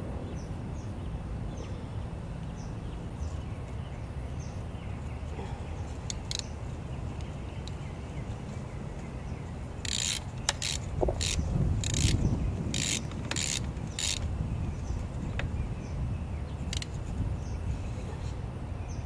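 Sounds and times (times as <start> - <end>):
hand tool rasps: 9.8 - 14.2.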